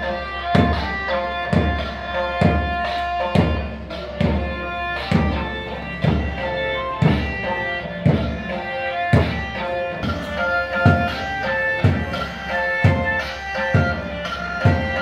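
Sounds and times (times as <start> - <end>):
music with steady drum beat: 0.0 - 15.0.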